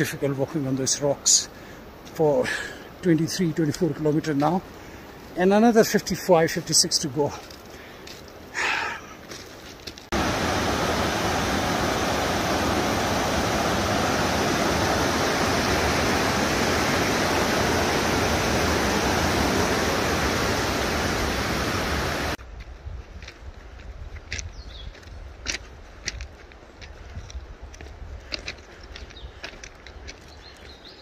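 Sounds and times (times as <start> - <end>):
rushing water: 0.0 - 22.4.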